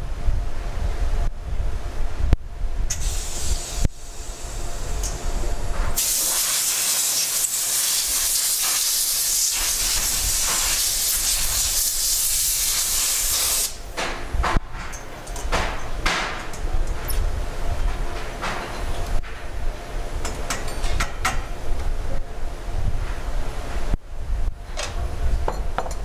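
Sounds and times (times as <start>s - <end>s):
loud steady hiss: 2.9s - 14.0s.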